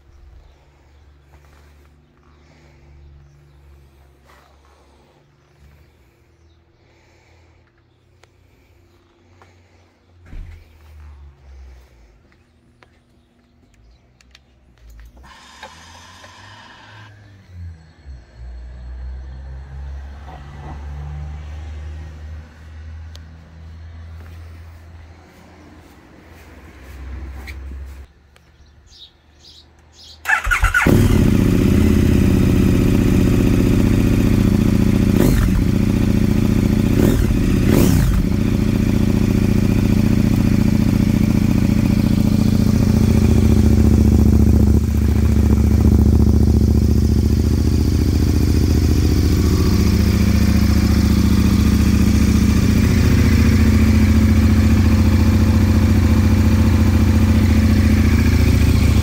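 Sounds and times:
starter motor whir: 15.2 - 17.2, 30.2 - 31.9
motorcycle engine running loud: 30.3 - 59.0.

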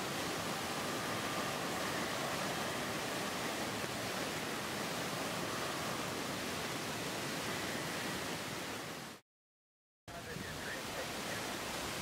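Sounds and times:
faint high whine: 0.0 - 8.5.

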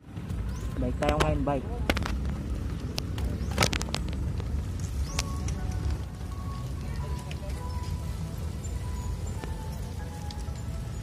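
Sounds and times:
low rumbling noise: 0.0 - 11.0
background music: 4.7 - 11.0.

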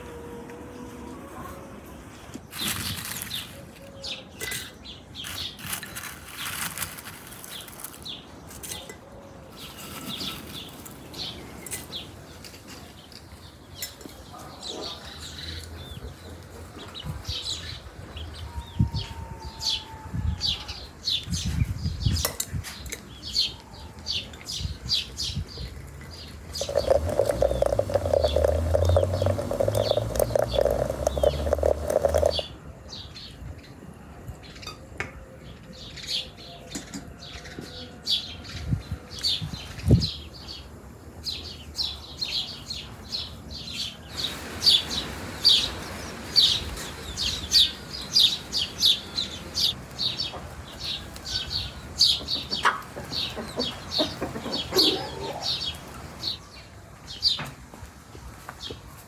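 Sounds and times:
small birds chirping: 20.4 - 33.8, 38.2 - 57.5
water pouring into teapot: 26.6 - 32.5.

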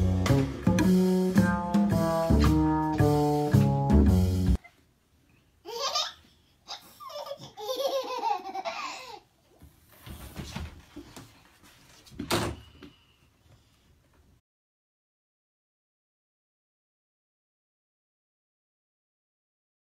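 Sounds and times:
baby laughing: 5.6 - 9.3.

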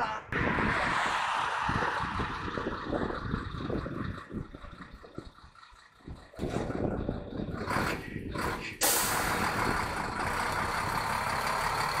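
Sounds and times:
diesel truck engine running: 0.4 - 12.0
loud hiss of air: 8.8 - 9.2.

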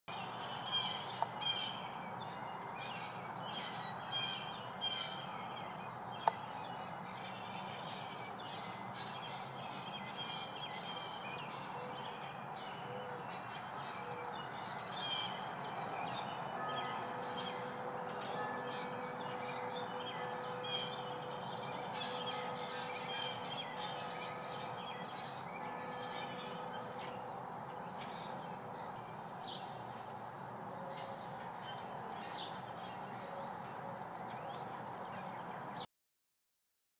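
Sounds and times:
birds chirping and calling: 0.1 - 30.1, 30.9 - 35.6
outdoor background noise: 0.1 - 35.9
faint steady tones: 16.5 - 27.7.

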